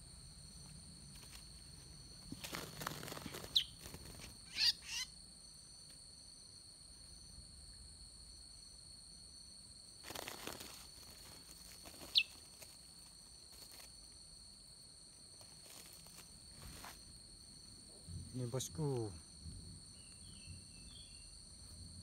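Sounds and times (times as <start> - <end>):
sharp bird calls: 2.5 - 5.1, 11.8 - 12.6
rustling and handling: 10.0 - 14.1, 15.3 - 17.1.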